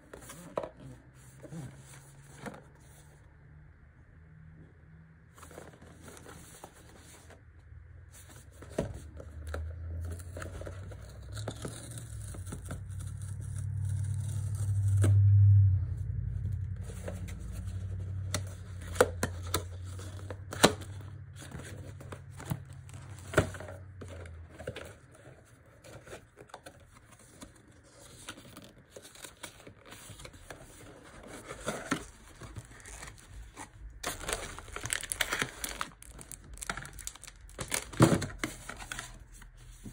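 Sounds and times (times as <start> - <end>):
low rumble: 9.3 - 24.6
cardboard box being torn open: 10.1 - 15.2, 31.1 - 39.2
wrapping crinkling: 16.8 - 39.9.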